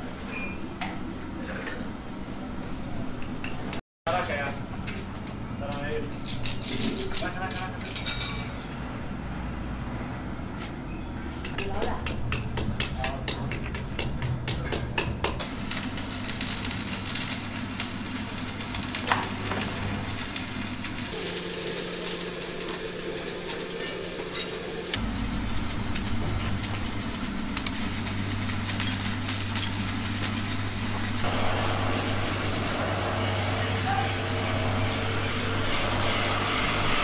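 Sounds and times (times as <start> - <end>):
low machine hum: 13.7 - 37.0.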